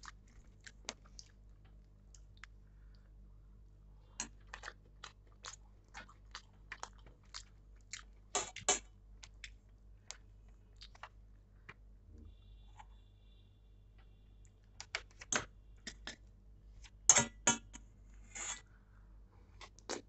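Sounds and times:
person chewing wetly: 0:00.0 - 0:03.2, 0:04.0 - 0:11.2.

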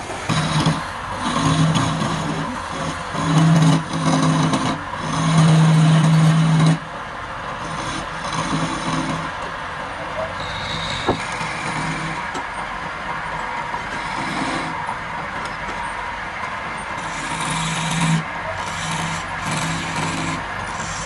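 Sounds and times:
chisel scraping wood: 0:00.0 - 0:06.8, 0:07.6 - 0:09.3, 0:10.4 - 0:12.4, 0:13.8 - 0:14.8, 0:17.0 - 0:21.0
wood lathe humming: 0:00.0 - 0:06.9, 0:07.5 - 0:21.0.

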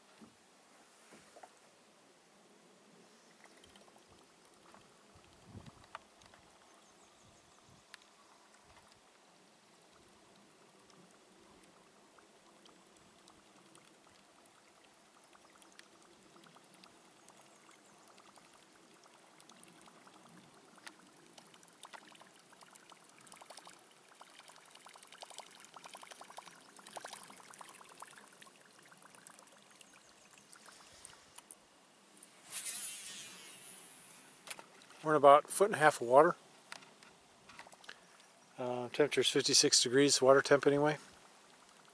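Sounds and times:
water gurgling: 0:03.3 - 0:36.4, 0:37.7 - 0:41.9
fishing lure ticking and plopping: 0:12.4 - 0:31.5.

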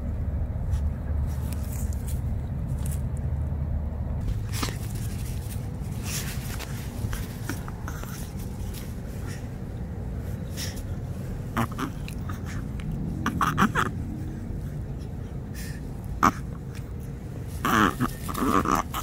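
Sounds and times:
low rumble: 0:00.0 - 0:18.4
puppy snuffling and snorting: 0:04.2 - 0:19.0.

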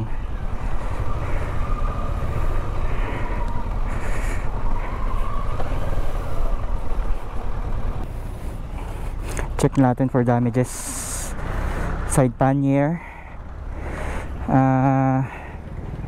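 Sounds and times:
faint engine whine: 0:00.0 - 0:16.0
motorcycle engine running: 0:13.0 - 0:16.0.

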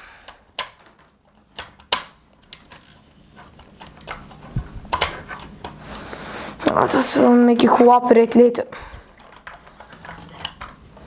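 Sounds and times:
plastic figure parts clicking: 0:00.2 - 0:05.8, 0:09.2 - 0:11.0.

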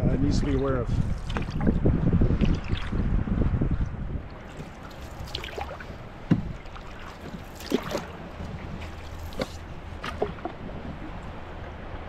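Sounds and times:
paddle pulling through water: 0:00.5 - 0:12.0
water splashing and dripping: 0:01.2 - 0:03.1, 0:03.8 - 0:11.4.

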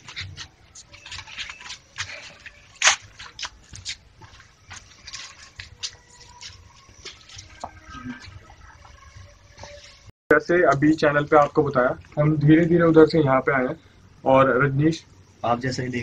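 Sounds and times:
footsteps on loose ground: 0:00.0 - 0:12.2.

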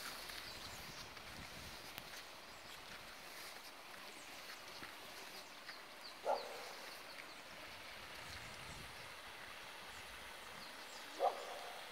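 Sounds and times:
dog barking: 0:06.2 - 0:06.7, 0:11.2 - 0:11.9.

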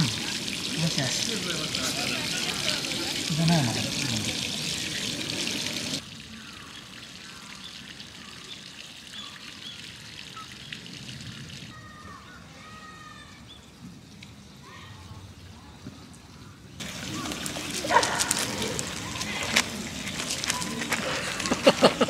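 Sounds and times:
faint trickling water: 0:00.0 - 0:22.0.

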